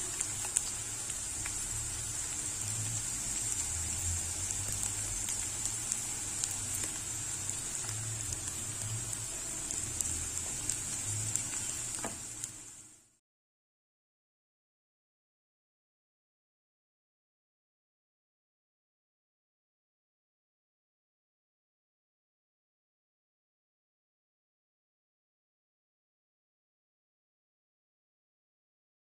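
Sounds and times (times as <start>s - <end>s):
onions sizzling in hot oil: 0.0s - 13.2s.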